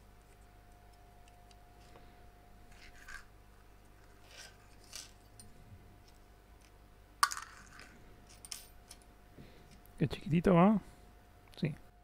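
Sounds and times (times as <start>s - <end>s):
soft handling noises: 0.2s - 6.8s.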